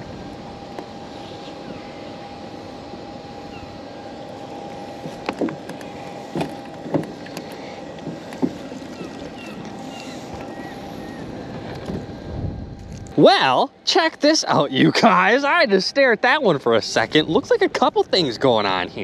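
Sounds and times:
small electric motor whining: 0.0 - 13.1.

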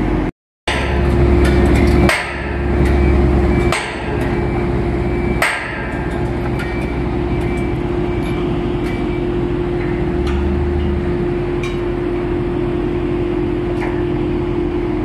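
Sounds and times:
engine hum: 0.0 - 15.0
hammer striking steel: 0.7 - 12.2.

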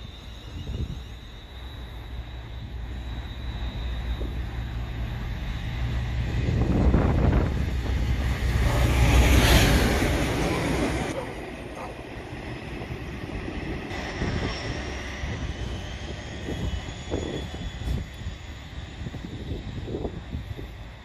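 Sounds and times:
diesel locomotive engine drone: 0.0 - 21.0
train wheel noise: 0.0 - 21.0.

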